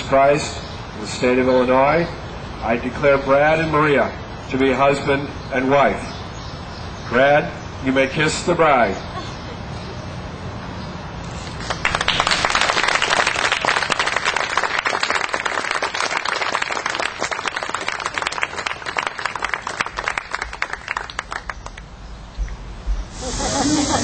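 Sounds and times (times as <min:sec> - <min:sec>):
crowd applauding: 0:11.4 - 0:21.9.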